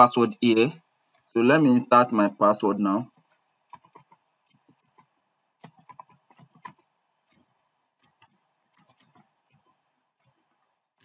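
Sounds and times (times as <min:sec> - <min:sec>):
computer keyboard keystrokes: 0:03.1 - 0:07.4, 0:08.0 - 0:10.4.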